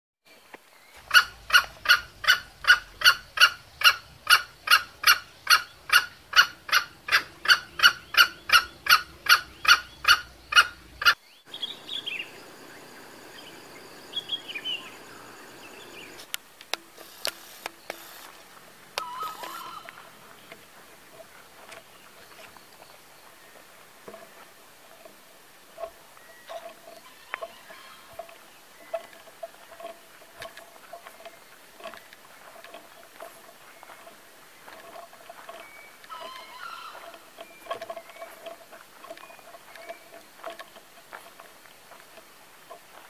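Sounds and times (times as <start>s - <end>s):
junglefowl calling: 1.0s - 13.4s, 19.0s - 20.5s, 25.8s - 32.0s, 34.6s - 40.2s
faint bird chirps: 6.8s - 16.2s, 19.0s - 20.6s, 26.1s - 29.6s
rooster crow: 19.0s - 19.9s, 36.1s - 37.1s.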